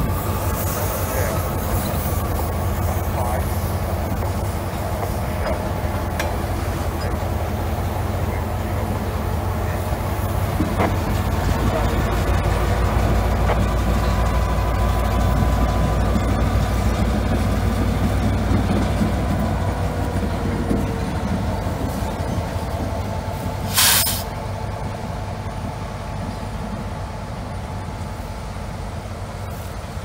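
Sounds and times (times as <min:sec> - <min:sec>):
diesel locomotive engine rumbling: 0:00.0 - 0:30.0
train wheels on rails: 0:00.0 - 0:30.0
air hiss burst: 0:23.7 - 0:24.3.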